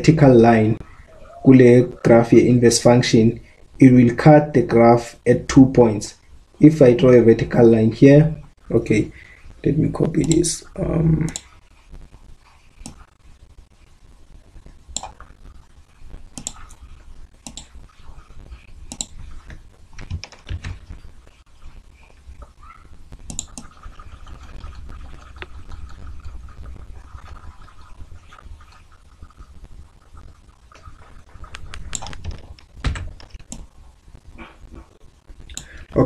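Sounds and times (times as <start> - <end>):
low steady hum: 0.0 - 36.0
mouse clicks: 16.4 - 16.8
computer keyboard tapping: 18.9 - 21.0, 30.8 - 33.7.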